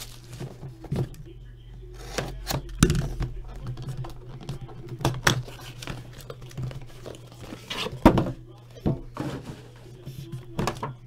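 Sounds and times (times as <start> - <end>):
cardboard packaging clicks and scrapes: 0.0 - 1.2
steady low hum: 0.0 - 11.0.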